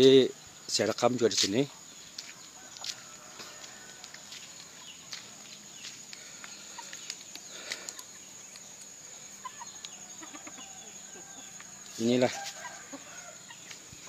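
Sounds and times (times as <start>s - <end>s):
insect drone: 0.0s - 14.0s
light footsteps: 1.4s - 8.7s, 11.5s - 12.9s, 13.5s - 14.0s
chicken clucking: 6.4s - 14.0s.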